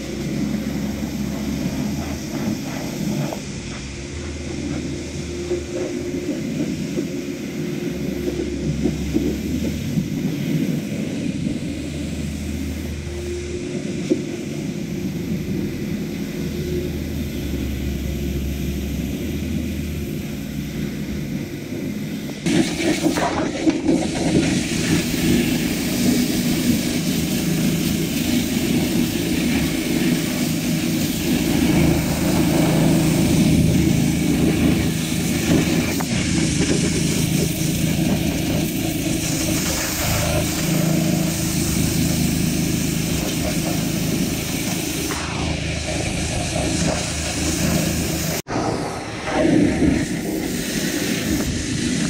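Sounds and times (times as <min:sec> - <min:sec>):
low pump hum: 0:00.0 - 0:22.5
pressure washer spraying water: 0:00.0 - 0:52.0.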